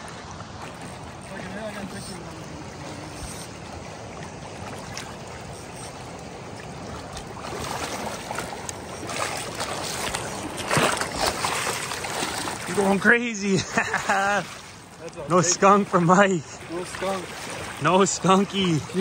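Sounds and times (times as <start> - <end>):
river current over cobbles: 0.0 - 19.0
net splashing in water: 6.9 - 12.8.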